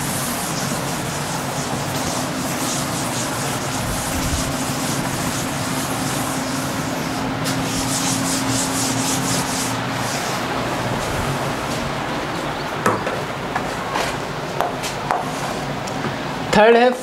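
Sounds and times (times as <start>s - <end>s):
duster wiping blackboard: 0.0s - 12.1s.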